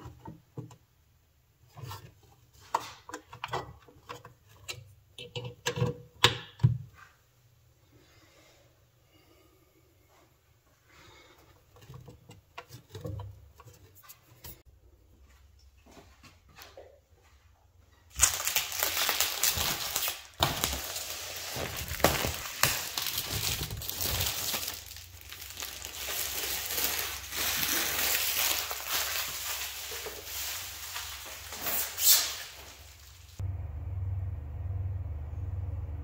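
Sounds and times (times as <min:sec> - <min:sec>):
plastic film peeling and crinkling: 0:18.1 - 0:33.4.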